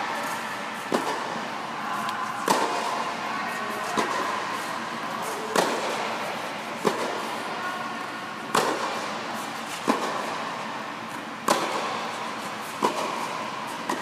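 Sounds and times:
steady background hum: 0:00.0 - 0:14.0
tennis balls struck by rackets: 0:00.2 - 0:01.5, 0:02.4 - 0:03.2, 0:03.8 - 0:04.4, 0:05.3 - 0:07.4, 0:08.4 - 0:14.0.

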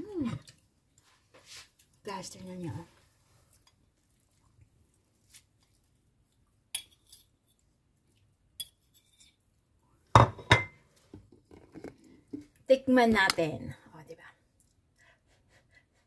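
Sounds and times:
cutlery knocking on plate: 0:10.2 - 0:10.8.

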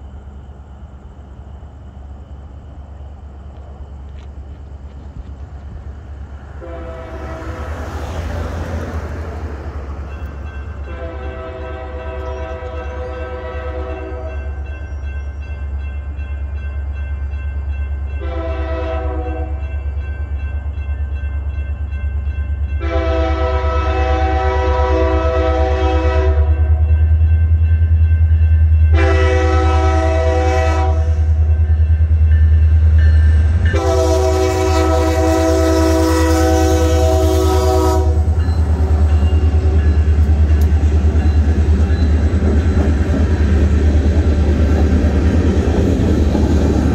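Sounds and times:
locomotive engine rumble: 0:00.0 - 0:25.4, 0:26.5 - 0:46.9
locomotive air horn blasts: 0:06.6 - 0:07.9, 0:10.8 - 0:14.5, 0:18.2 - 0:19.6, 0:22.8 - 0:26.8, 0:28.9 - 0:31.4, 0:33.7 - 0:39.9.

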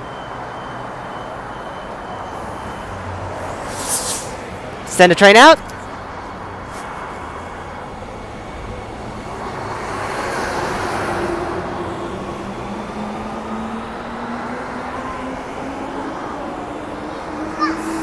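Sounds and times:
electric train wheel noise: 0:05.9 - 0:18.0.

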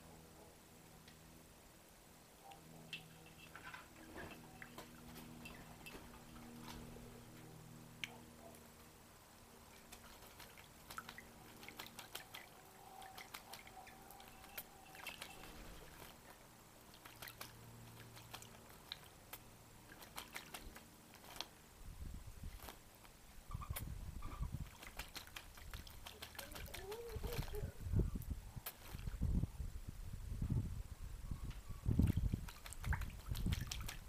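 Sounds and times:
bird splashing in water: 0:09.7 - 0:21.6, 0:24.4 - 0:27.6, 0:28.6 - 0:29.2, 0:32.0 - 0:34.0.

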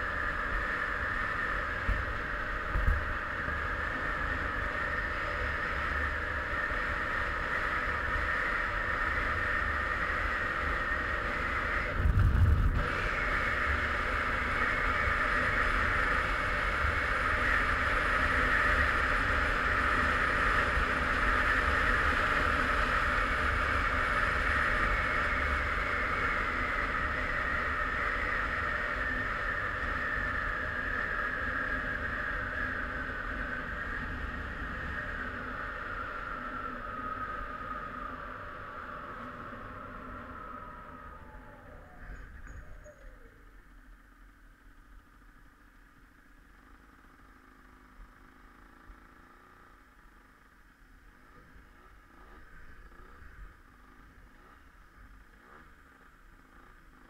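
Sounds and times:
muffled two-stroke engine running: 0:00.0 - 0:57.0
wind and road noise: 0:00.0 - 0:57.0
low rumble: 0:11.5 - 0:15.2.

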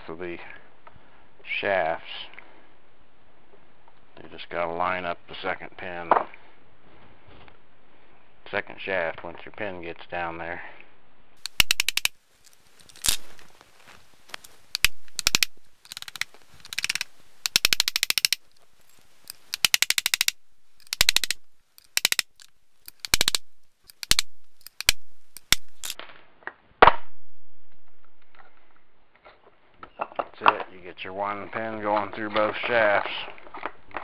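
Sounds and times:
metal parts clicking and clattering: 0:11.4 - 0:13.4, 0:14.3 - 0:26.0.

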